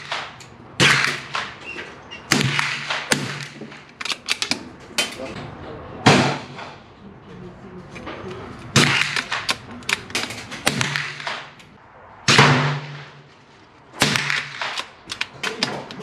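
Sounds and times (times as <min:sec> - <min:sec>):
rifle shots: 0:00.0 - 0:01.6, 0:02.3 - 0:04.6, 0:06.1 - 0:06.8, 0:08.7 - 0:11.6, 0:12.2 - 0:13.3, 0:14.0 - 0:16.0
rifle bolt clicks and knocks: 0:02.9 - 0:05.4, 0:14.3 - 0:16.0.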